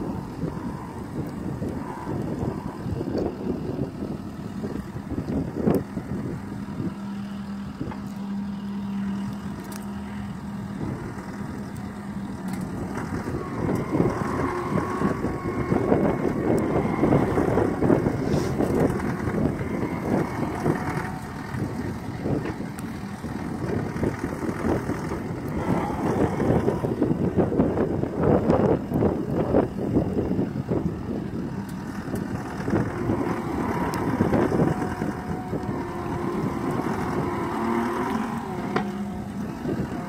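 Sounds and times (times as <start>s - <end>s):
diesel engine and hydraulics: 0.0s - 40.0s
bucket digging soil: 18.2s - 18.6s.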